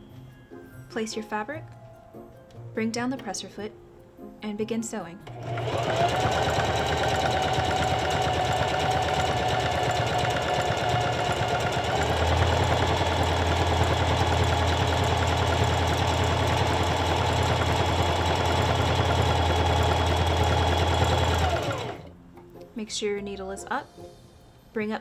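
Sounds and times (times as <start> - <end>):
electric sewing machine running: 5.2 - 22.1.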